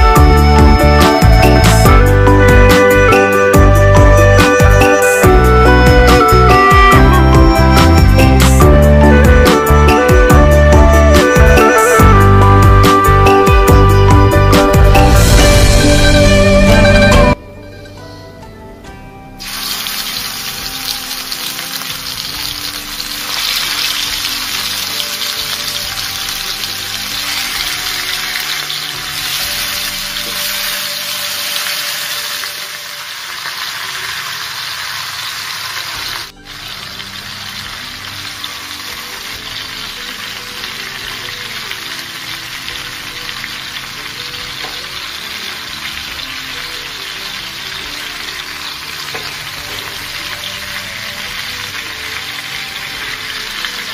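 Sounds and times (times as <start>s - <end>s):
background music: 0.0s - 53.9s
chicken sizzling in hot oil: 19.4s - 53.9s.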